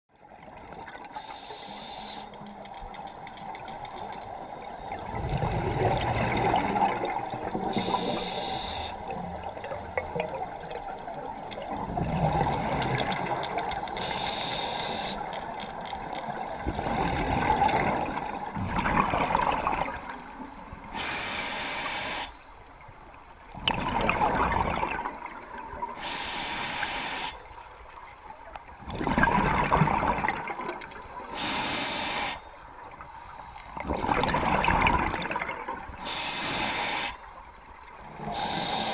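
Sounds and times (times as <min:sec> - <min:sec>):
regulator inhale hiss: 0:01.1 - 0:02.4, 0:07.7 - 0:09.1, 0:14.0 - 0:15.2, 0:20.9 - 0:22.4, 0:26.0 - 0:27.4, 0:31.3 - 0:32.4, 0:36.0 - 0:37.2, 0:38.3 - 0:38.9
rapid clicks: 0:02.2 - 0:04.4, 0:12.3 - 0:16.3.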